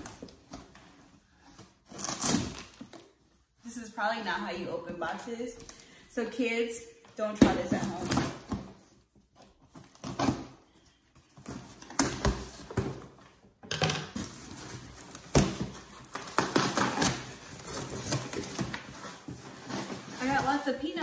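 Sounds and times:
cardboard and packing peanuts rustling: 0:14.2 - 0:21.0.

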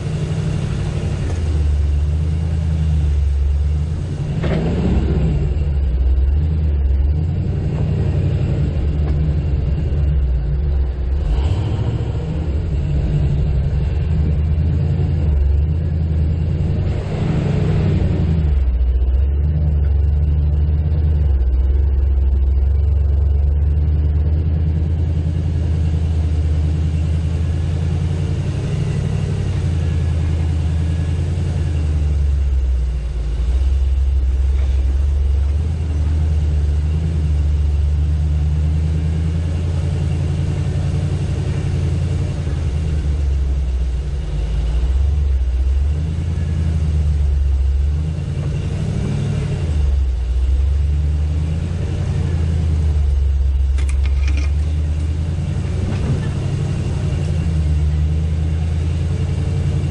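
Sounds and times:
engine running at low revs: 0:00.0 - 0:59.9.

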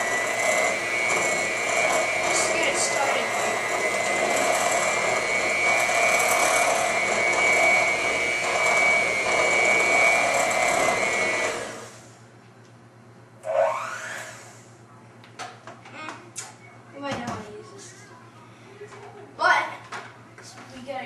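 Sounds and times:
electric hand mixer whining: 0:00.0 - 0:12.1, 0:13.4 - 0:14.7.

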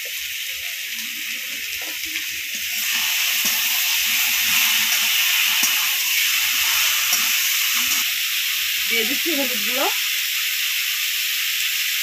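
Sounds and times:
vegetables sizzling in hot oil: 0:00.0 - 0:12.0
metal spatula stirring: 0:01.7 - 0:08.0.

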